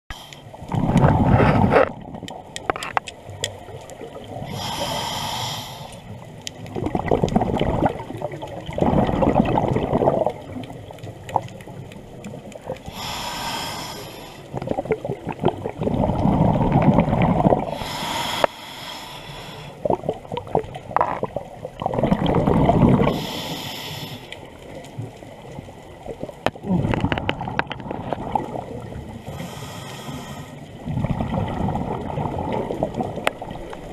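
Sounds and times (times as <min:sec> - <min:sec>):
regulator hissing inhale: 0:00.1 - 0:00.6, 0:04.5 - 0:06.1, 0:12.8 - 0:14.6, 0:17.7 - 0:19.8, 0:23.1 - 0:24.5, 0:29.2 - 0:30.7
bubbling exhaled air: 0:00.1 - 0:02.2, 0:06.6 - 0:11.4, 0:12.4 - 0:24.3, 0:26.5 - 0:33.9.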